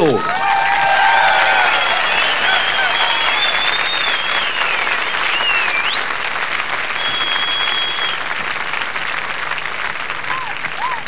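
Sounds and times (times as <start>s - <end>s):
audience applauding: 0.0s - 11.0s
high whistles: 1.2s - 6.2s, 6.9s - 8.3s.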